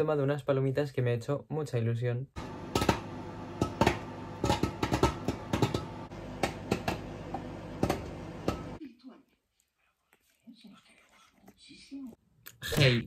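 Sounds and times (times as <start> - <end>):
microwave oven hum: 2.4 - 8.8
popcorn popping: 2.4 - 8.8.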